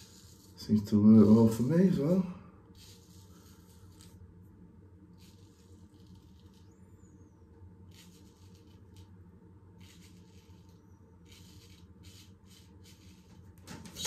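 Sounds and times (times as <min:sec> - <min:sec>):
straight razor scraping stubble: 0:05.2 - 0:06.8, 0:07.9 - 0:09.2, 0:09.8 - 0:14.0.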